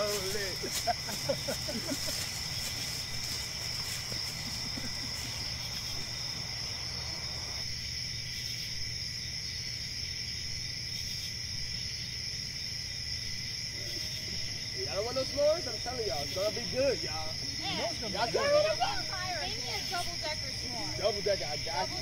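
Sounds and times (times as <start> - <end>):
faint voices: 0.0 - 7.6, 13.8 - 22.0
crickets chirring: 0.0 - 22.0.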